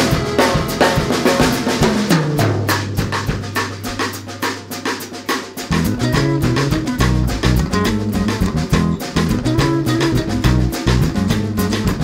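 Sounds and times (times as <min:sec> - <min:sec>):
drum kit beat: 0:00.0 - 0:12.0
bass line: 0:05.7 - 0:12.0.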